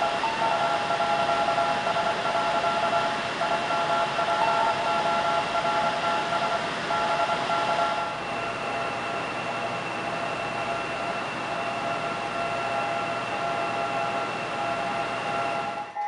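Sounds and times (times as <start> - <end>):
morse code tones: 0.0 - 8.2.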